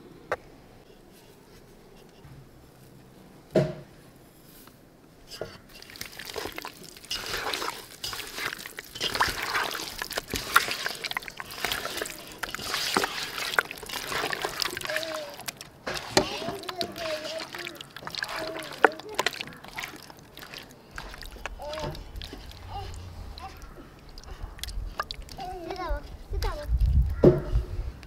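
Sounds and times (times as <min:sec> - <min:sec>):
wet squelching of hand mixing: 0:05.3 - 0:27.2.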